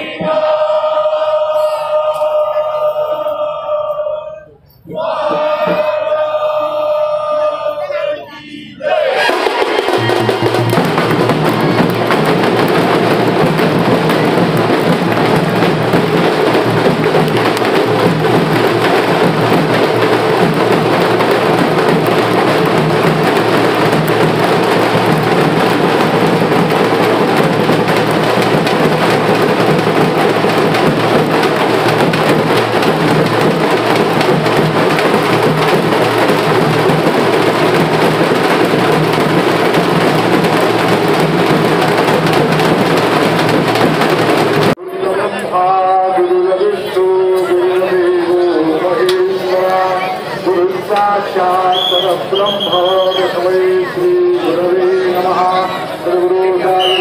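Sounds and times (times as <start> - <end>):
drums beating: 0.0 - 3.2, 4.8 - 7.7, 8.8 - 44.8, 47.3 - 57.0
devotional chanting: 0.0 - 12.0, 44.7 - 57.0
crowd din: 0.0 - 57.0.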